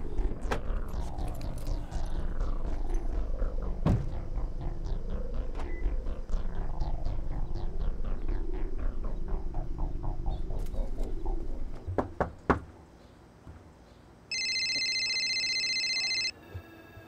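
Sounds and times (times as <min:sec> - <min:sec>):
low rumble: 0:00.0 - 0:11.9
mobile phone ringtone: 0:14.3 - 0:17.0.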